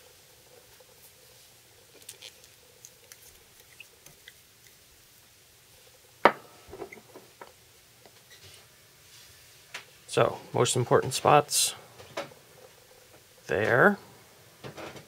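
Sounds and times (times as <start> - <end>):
small clicks and scratches: 1.9 - 4.8.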